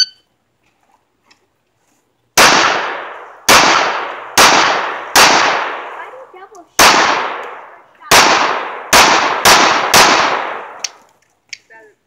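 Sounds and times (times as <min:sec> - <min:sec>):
pistol shots with echo: 0:02.4 - 0:06.0, 0:06.8 - 0:11.0.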